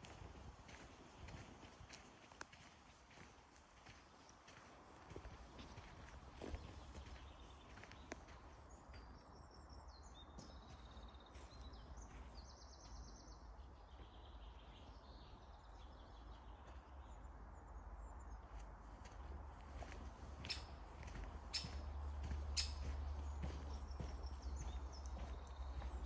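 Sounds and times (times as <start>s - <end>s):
songbird singing: 0.0s - 26.0s.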